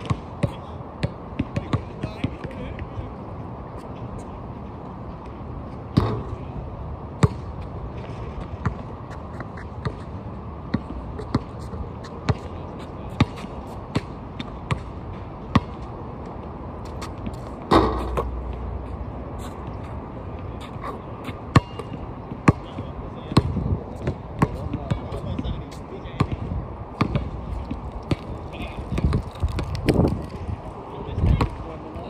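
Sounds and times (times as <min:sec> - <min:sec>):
basketball bouncing: 0:00.0 - 0:02.4, 0:07.2 - 0:07.5, 0:10.7 - 0:11.6, 0:27.0 - 0:30.4.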